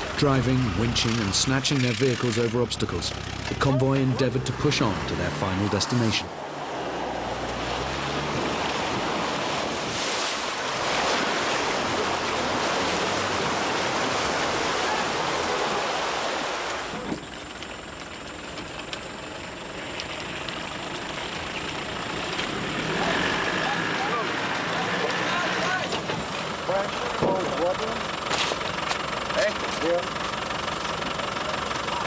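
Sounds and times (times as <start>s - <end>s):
vehicle engine running: 0.0s - 6.4s, 16.8s - 32.0s
water rushing and splashing: 0.0s - 32.0s.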